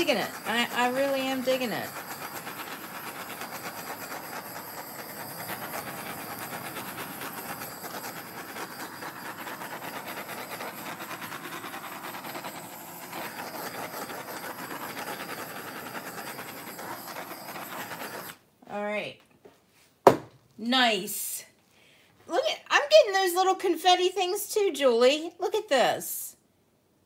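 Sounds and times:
butane torch hissing: 0.0 - 18.4.

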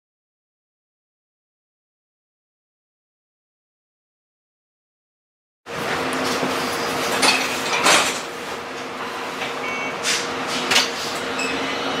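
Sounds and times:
tram equipment hum: 5.7 - 12.0.

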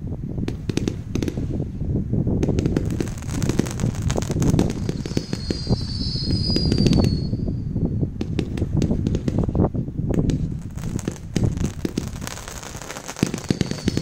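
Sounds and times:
low rumble of launches: 0.0 - 14.0
fireworks popping and crackling: 0.4 - 1.6, 2.4 - 7.4, 8.2 - 14.0
high whistling tone: 4.7 - 8.0, 13.5 - 14.0.

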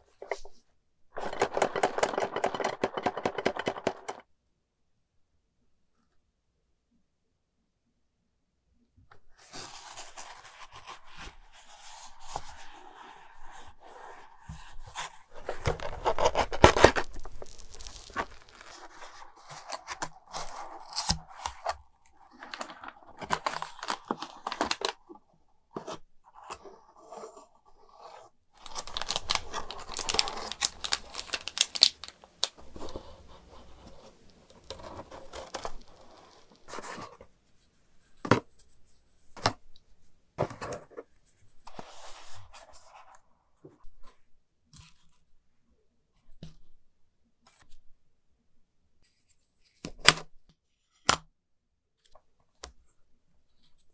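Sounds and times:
cardboard scraping and tearing: 14.4 - 24.9, 26.6 - 37.2.

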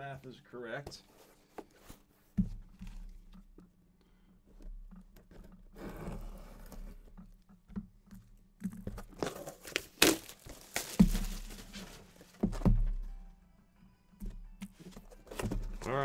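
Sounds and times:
packaging crinkling and scraping: 8.7 - 12.4.

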